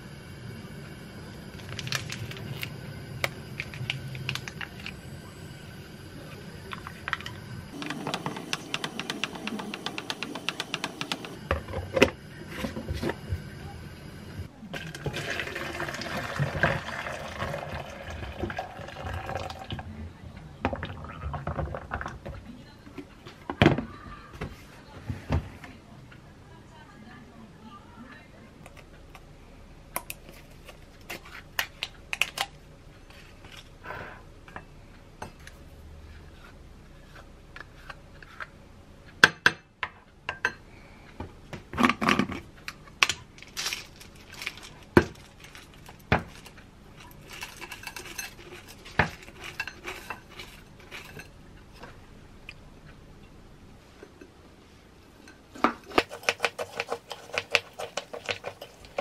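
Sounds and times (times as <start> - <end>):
spoon stirring granola: 47.0 - 51.4, 55.8 - 59.0.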